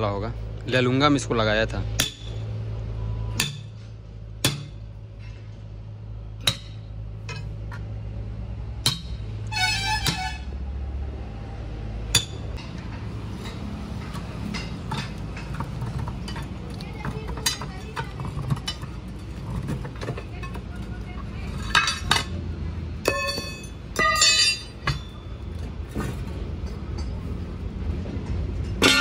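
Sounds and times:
metal clanks on wheel rim: 6.4s - 7.9s, 8.8s - 10.5s, 12.1s - 22.4s, 23.0s - 27.3s, 28.2s - 29.0s.

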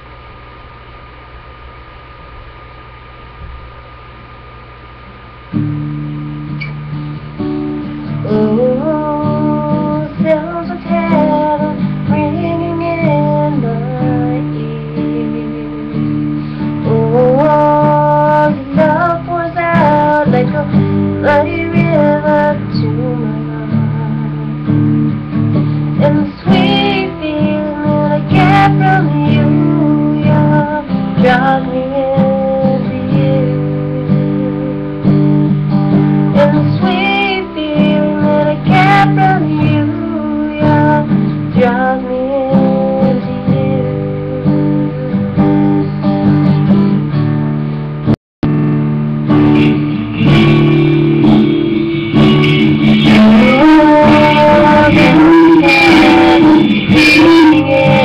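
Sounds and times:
acoustic guitar strumming chords: 5.0s - 58.0s
woman singing slow melody: 8.1s - 25.0s, 25.9s - 35.2s, 36.3s - 45.8s, 49.6s - 58.0s.

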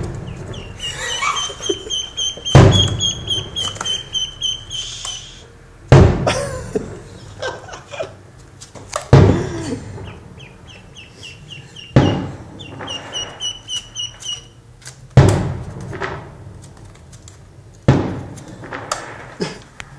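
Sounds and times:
duckling peeping: 0.0s - 5.4s, 10.0s - 14.6s
loud thumps: 2.3s - 4.0s, 5.9s - 6.4s, 9.1s - 10.4s, 11.8s - 13.6s.

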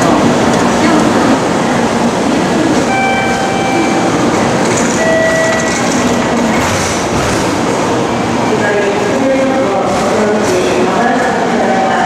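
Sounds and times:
train rushing rumble: 0.0s - 12.0s
train whine: 0.0s - 12.0s.

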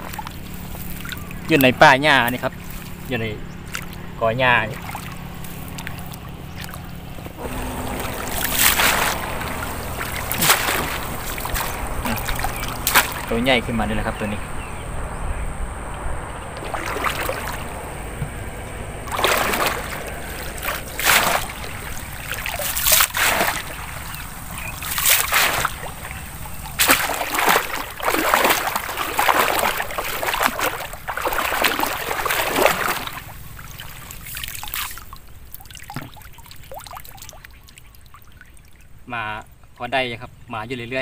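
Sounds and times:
water trickling through mesh: 3.6s - 14.1s, 16.5s - 38.9s
net splashing in water: 4.6s - 13.7s, 16.6s - 38.4s.

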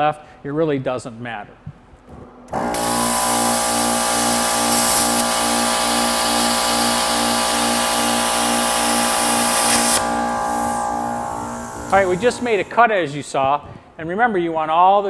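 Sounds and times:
air compressor humming: 2.4s - 12.9s
plasma cutter hissing: 2.6s - 12.8s.

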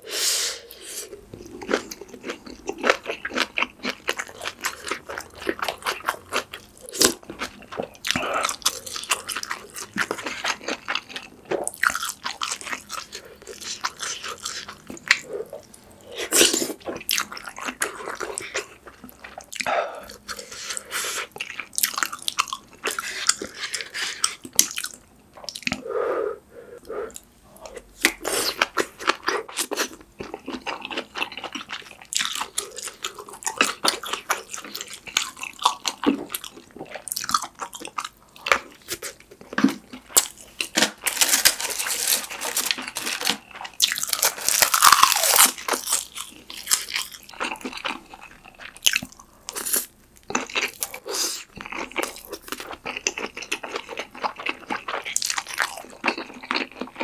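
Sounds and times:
close chewing with wet mouth clicks: 27.1s - 40.3s, 44.7s - 57.0s.

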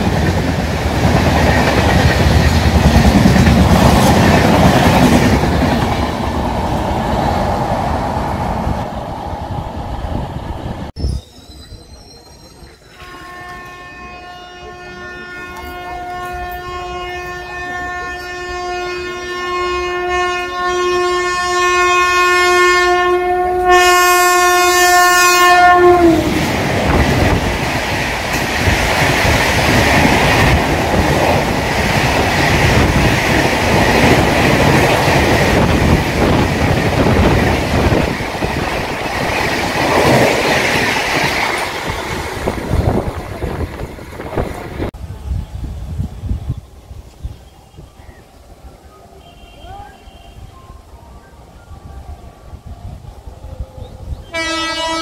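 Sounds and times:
train coaches rushing past: 0.0s - 55.0s
train horn blast: 12.9s - 26.5s, 49.2s - 50.8s, 54.2s - 55.0s.

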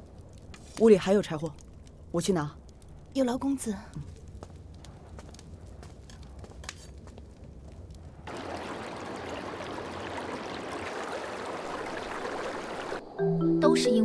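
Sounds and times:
river flowing: 8.3s - 13.0s.

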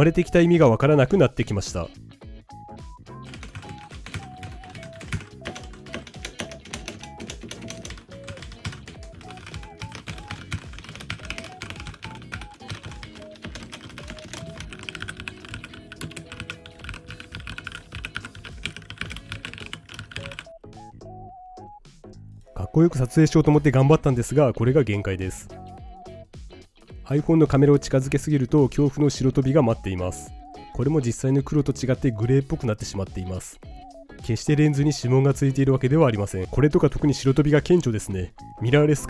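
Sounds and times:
background music: 0.0s - 39.0s
mechanical keyboard typing: 3.3s - 20.5s.

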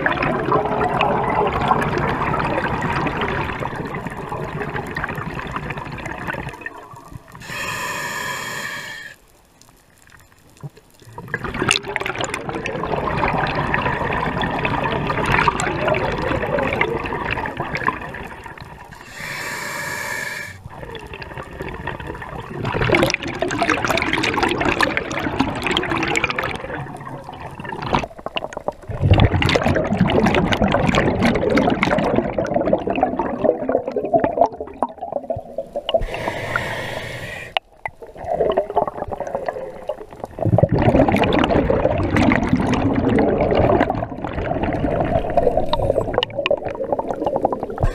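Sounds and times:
diver inhaling through regulator: 7.4s - 9.2s, 19.0s - 20.6s, 36.0s - 37.6s.

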